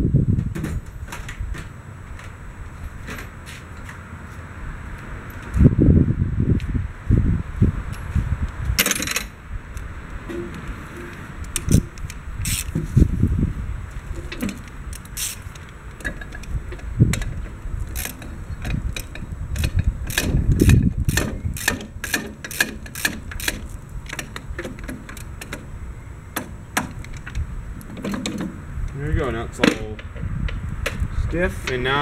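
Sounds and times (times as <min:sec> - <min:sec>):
socket ratchet clicking: 0:17.9 - 0:25.7.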